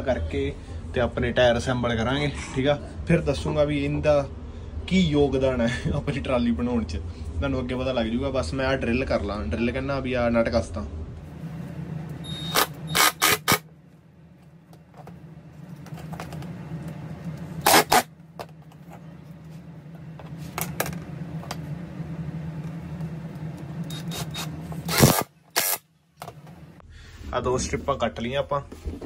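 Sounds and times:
cordless drill running: 12.3 - 13.6, 23.8 - 25.8.

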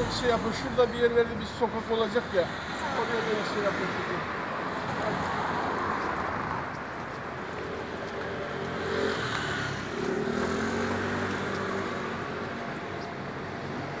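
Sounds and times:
road noise: 0.0 - 14.0
vehicle engine passing: 8.5 - 12.6.

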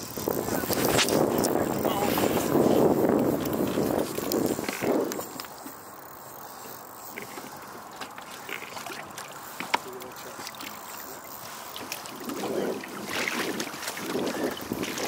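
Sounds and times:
wind on microphone: 0.0 - 5.6, 11.4 - 15.0
water splashing against boat: 0.0 - 5.9, 6.6 - 15.0.

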